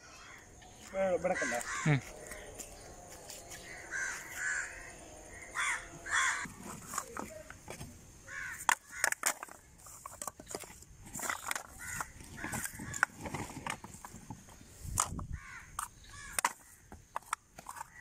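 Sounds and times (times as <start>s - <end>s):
crows cawing: 0.0s - 6.5s, 8.2s - 9.5s, 11.2s - 13.5s, 15.3s - 17.1s
coconut shells knocking together: 8.4s - 14.2s, 14.9s - 18.0s.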